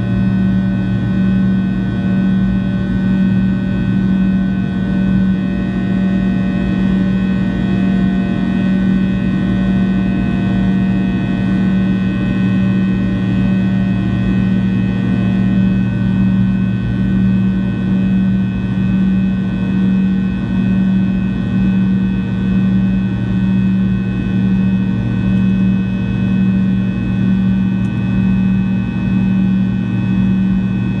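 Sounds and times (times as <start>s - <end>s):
aircraft cabin drone: 0.0s - 31.0s
jet engine whine: 0.0s - 31.0s.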